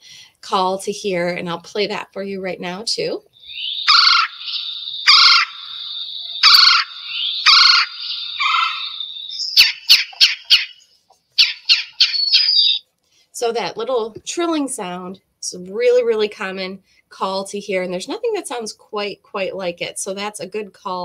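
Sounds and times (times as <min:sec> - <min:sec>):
woodpecker trilling calls: 0:03.3 - 0:12.8
short sharp bird notes: 0:03.4 - 0:12.8.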